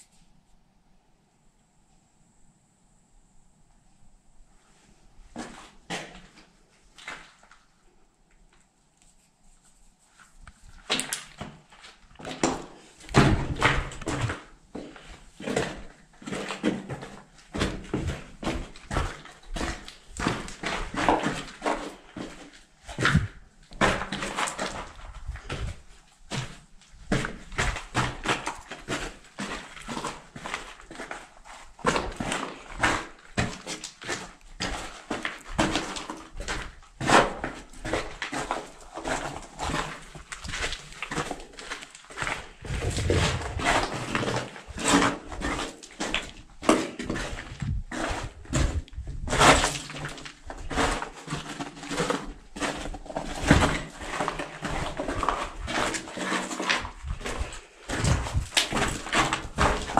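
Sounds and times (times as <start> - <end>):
footsteps on rubble: 5.3 - 8.7, 10.1 - 59.9.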